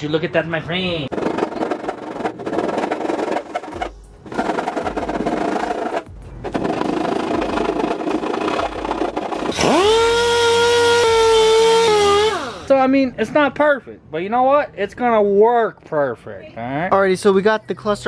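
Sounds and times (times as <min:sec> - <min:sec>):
orbital sander whine: 0:06.6 - 0:12.7.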